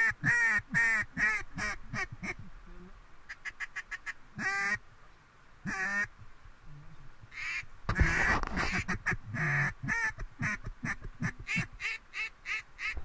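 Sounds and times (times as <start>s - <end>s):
duck call quacks: 0.0s - 2.4s, 3.3s - 4.8s, 5.6s - 6.1s, 7.3s - 13.0s.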